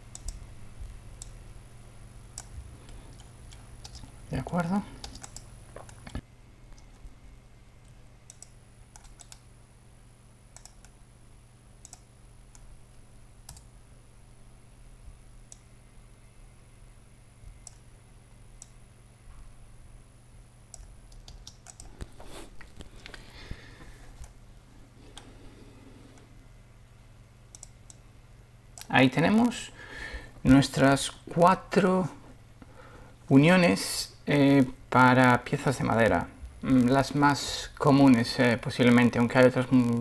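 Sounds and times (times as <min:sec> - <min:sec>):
faint high whine: 0:00.0 - 0:21.0
steady low hum: 0:00.0 - 0:40.0
mouse and keyboard clicks: 0:05.0 - 0:06.2, 0:10.6 - 0:11.0, 0:11.8 - 0:12.7, 0:20.7 - 0:22.0.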